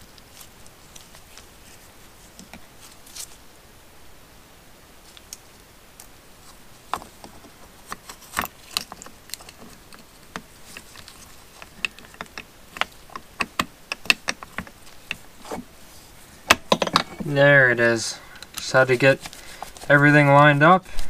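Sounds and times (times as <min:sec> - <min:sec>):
small metallic clicks and taps: 0:06.9 - 0:15.2.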